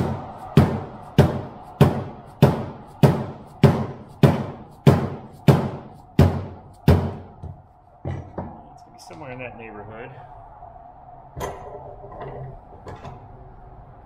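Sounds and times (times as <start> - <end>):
hammer striking metal bracket: 0.0 - 7.3.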